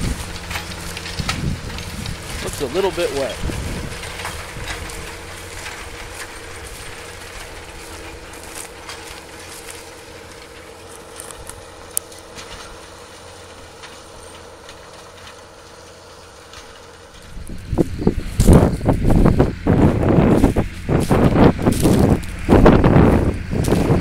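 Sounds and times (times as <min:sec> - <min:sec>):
wind buffeting microphone: 0:00.0 - 0:08.7, 0:17.1 - 0:24.0
tractor diesel engine under load: 0:00.0 - 0:24.0.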